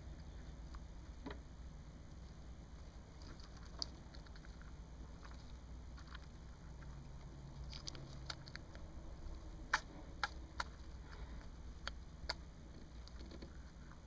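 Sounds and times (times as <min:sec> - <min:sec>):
low steady hum: 0:00.0 - 0:14.0
hamster nibbling clicks: 0:09.7 - 0:13.6.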